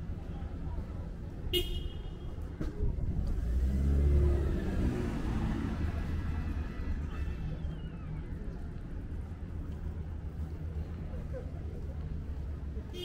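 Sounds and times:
vehicle passing by: 0:03.1 - 0:08.5.

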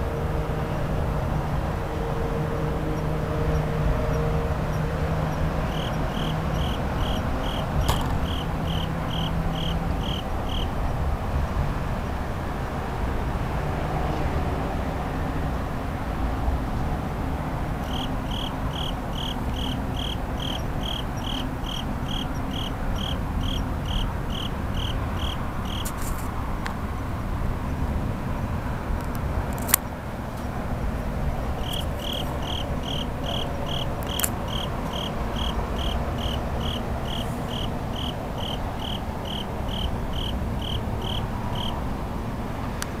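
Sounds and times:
low hum of city traffic: 0:00.0 - 0:43.0
cricket chirping: 0:04.1 - 0:10.8, 0:17.8 - 0:26.3, 0:31.5 - 0:41.8
sharp click: 0:07.8 - 0:08.2, 0:29.1 - 0:29.8.

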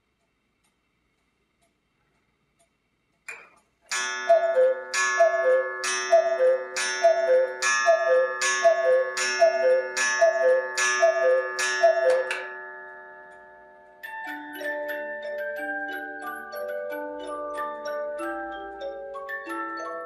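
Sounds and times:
cuckoo clock call: 0:03.9 - 0:20.0.

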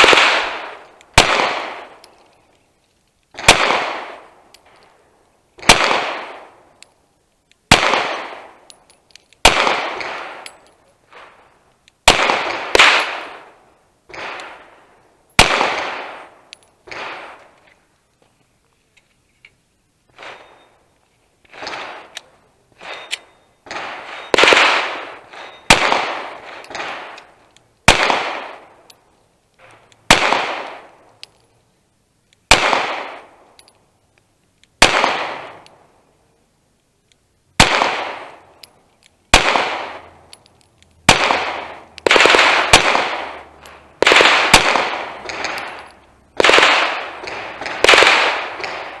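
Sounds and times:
pistol shots echoing: 0:00.0 - 0:02.1, 0:03.4 - 0:04.4, 0:05.6 - 0:06.7, 0:07.7 - 0:08.7, 0:09.4 - 0:10.6, 0:12.0 - 0:14.8, 0:15.4 - 0:17.4, 0:22.8 - 0:28.8, 0:30.0 - 0:31.0, 0:32.5 - 0:33.4, 0:34.8 - 0:35.7, 0:37.6 - 0:38.6, 0:39.3 - 0:40.2, 0:41.1 - 0:49.0.

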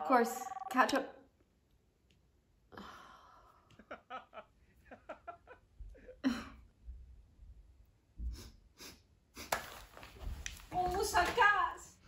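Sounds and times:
woman sighing: 0:02.7 - 0:03.6
woman breathing heavily: 0:02.7 - 0:03.8.

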